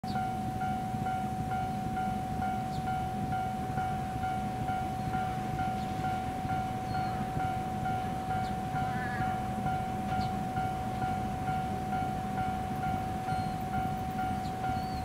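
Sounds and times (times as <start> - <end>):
electric train rumble: 0.0 - 15.0
level crossing bell ringing: 0.1 - 15.0.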